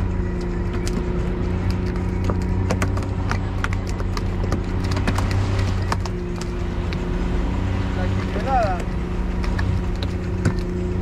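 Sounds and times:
boat motor running: 0.0s - 11.0s
knocks and taps: 1.6s - 7.0s.

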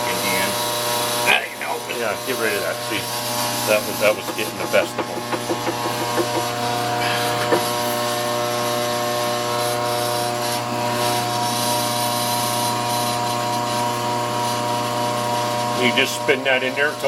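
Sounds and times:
machinery motor hum: 0.0s - 9.8s.

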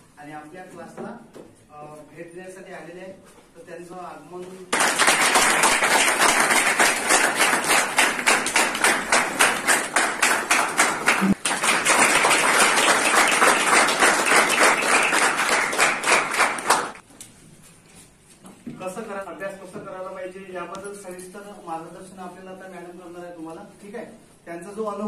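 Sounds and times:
people clapping in rhythm: 4.7s - 17.0s.

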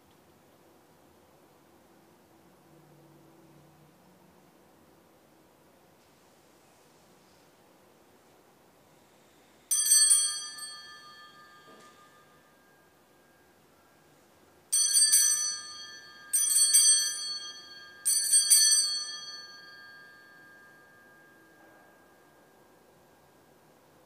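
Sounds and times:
altar bells jangling: 9.7s - 12.8s, 14.7s - 22.5s.

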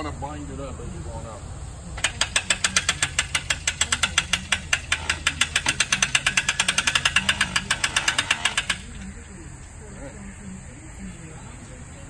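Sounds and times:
winch ratchet clicking: 1.9s - 9.8s.

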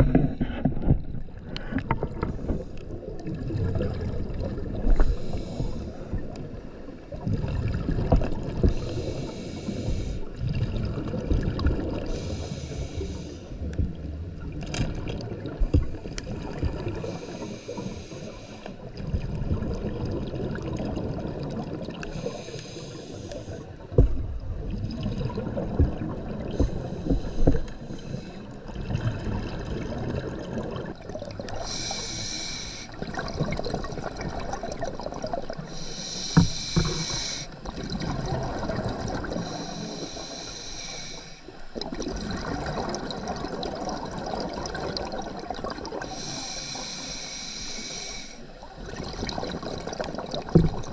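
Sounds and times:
gurgle of exhaled bubbles: 0.0s - 18.0s, 18.8s - 22.6s, 23.7s - 40.7s, 41.7s - 47.0s, 48.6s - 50.9s
regulator inhalation hiss: 5.0s - 6.1s, 8.7s - 10.3s, 12.1s - 13.5s, 17.0s - 18.7s, 22.1s - 23.7s, 31.6s - 33.0s, 35.7s - 37.6s, 39.4s - 41.6s, 46.0s - 48.5s.

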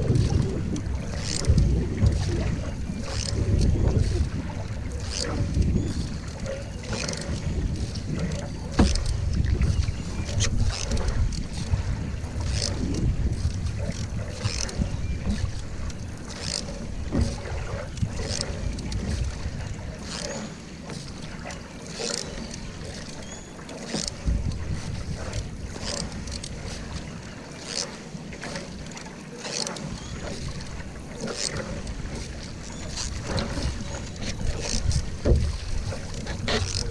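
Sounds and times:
wind rumble on microphone: 0.0s - 20.1s, 24.1s - 27.3s, 31.6s - 36.9s
paddle splashing in water: 0.0s - 36.9s.

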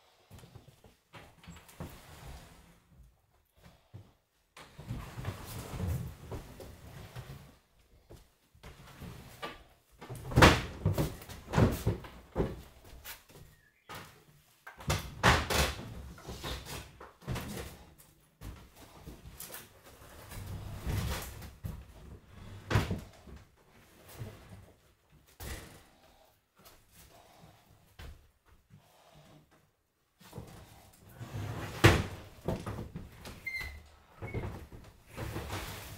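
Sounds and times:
wooden furniture knocking and breaking: 10.2s - 12.7s.

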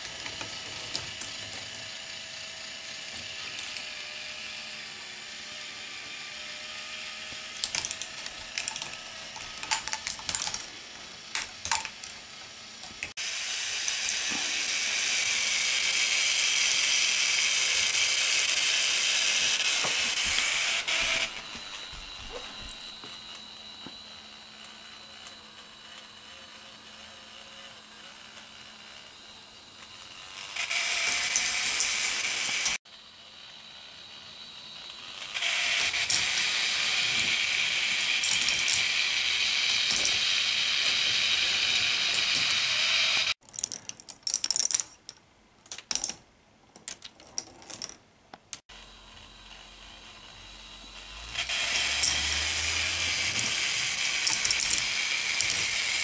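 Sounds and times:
plastic balls rattling along tracks: 0.0s - 2.0s, 7.5s - 13.1s, 35.4s - 48.6s, 52.0s - 56.0s
motor-driven lifts whirring: 0.0s - 43.4s, 48.7s - 56.0s
ratcheting gear clicking: 51.3s - 56.0s.

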